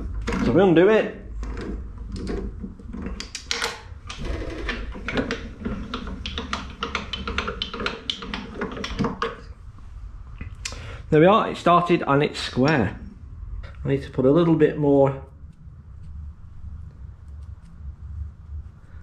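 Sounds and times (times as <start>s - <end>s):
steady low hum: 0.0s - 19.0s
metallic clicks and taps: 3.0s - 3.9s, 5.1s - 9.5s.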